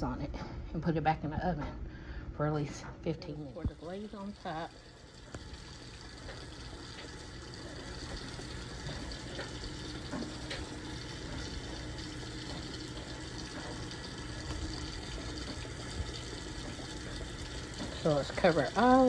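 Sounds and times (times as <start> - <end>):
rushing kitchen background noise: 3.6 - 19.0.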